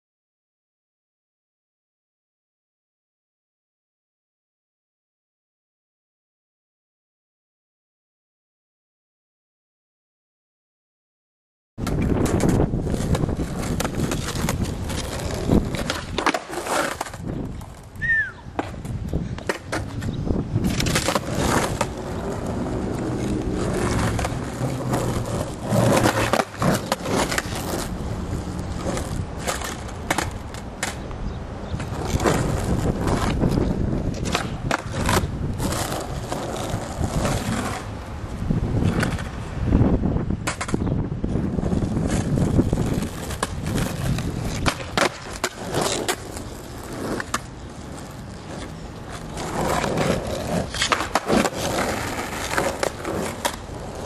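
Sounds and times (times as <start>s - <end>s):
skateboard wooden clacks: 11.8s - 31.2s, 31.8s - 37.9s, 40.4s - 40.9s, 42.0s - 54.0s
skateboard wheels rolling: 11.8s - 54.0s.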